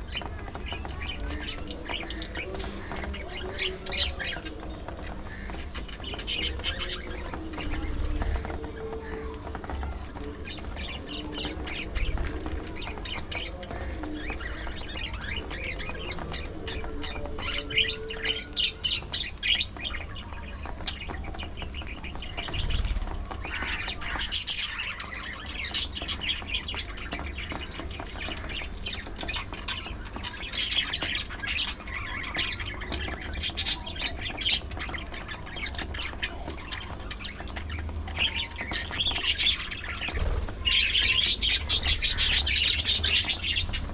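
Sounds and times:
budgerigars chirping and squawking: 0:00.0 - 0:43.9.

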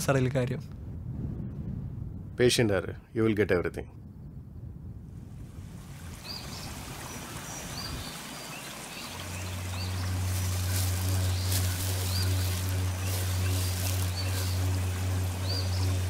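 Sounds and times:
steady hiss: 0:06.2 - 0:16.0
low steady drone: 0:08.7 - 0:16.0.

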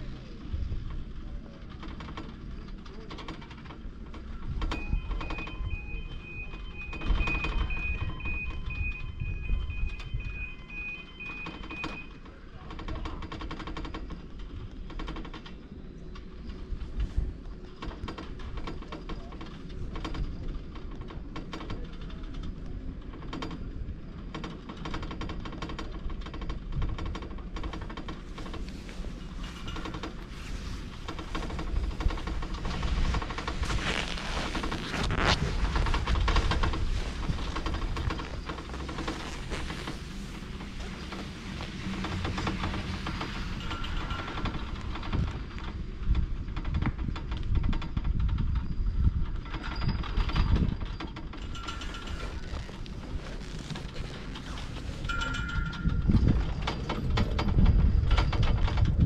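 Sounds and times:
chairlift machinery rumble: 0:00.0 - 0:59.0
high tone: 0:04.7 - 0:12.2
low rumble: 0:28.1 - 0:49.3.

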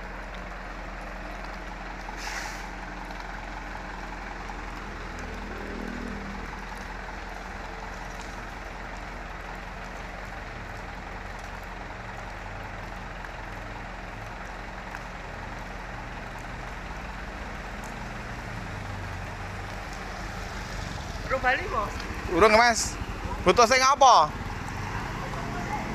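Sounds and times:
faint light ticks: 0:00.2 - 0:02.1, 0:04.7 - 0:13.6, 0:14.2 - 0:16.9, 0:17.6 - 0:20.2
even hiss: 0:02.1 - 0:02.8.

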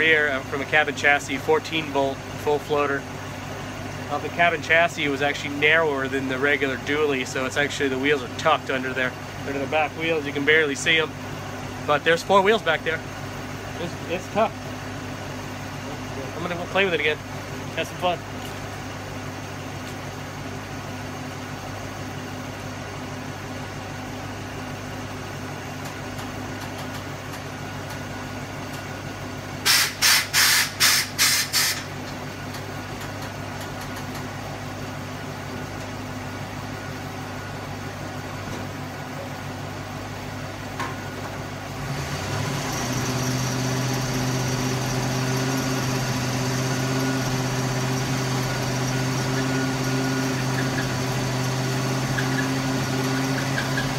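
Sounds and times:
engine idling: 0:00.0 - 0:53.9
air hiss blasts: 0:29.6 - 0:31.9.

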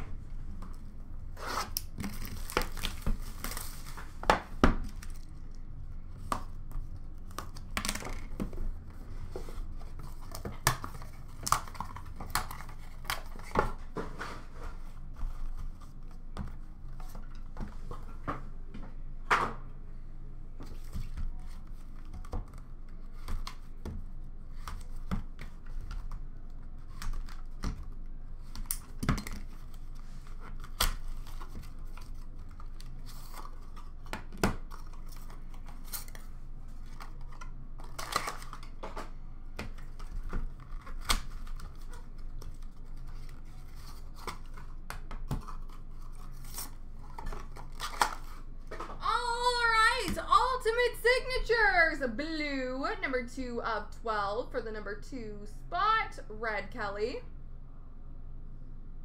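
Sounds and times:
faint low hum: 0:00.0 - 0:59.0
cardboard packaging rustling: 0:01.4 - 0:04.2, 0:29.3 - 0:38.9, 0:39.7 - 0:48.8
packaging tearing: 0:37.8 - 0:38.7.

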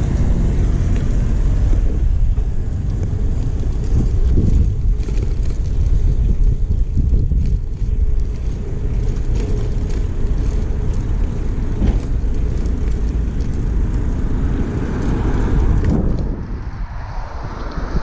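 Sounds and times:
wind rumbling on microphone: 0:00.0 - 0:18.0
bicycle clicks and rattles: 0:00.9 - 0:16.4.

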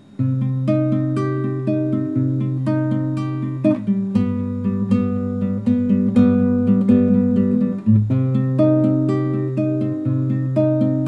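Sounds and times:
classical guitar chords: 0:00.0 - 0:11.0.

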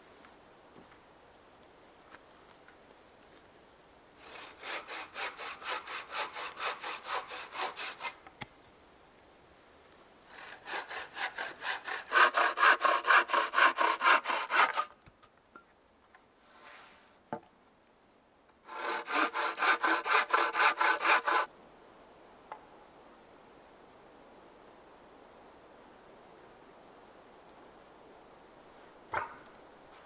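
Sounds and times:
saw cutting wood: 0:04.2 - 0:08.2, 0:10.3 - 0:14.9, 0:18.7 - 0:21.5.

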